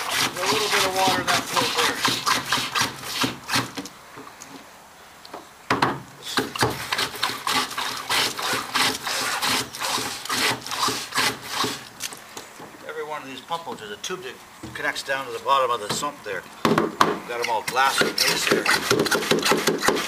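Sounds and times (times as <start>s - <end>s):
hand pump rasping strokes: 0.0s - 3.8s, 6.2s - 11.9s, 17.3s - 20.0s.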